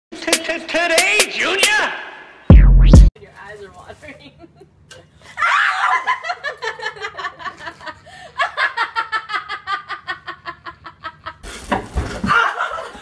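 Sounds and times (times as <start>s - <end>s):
people laughing hard: 5.5s - 11.4s, 12.3s - 13.0s.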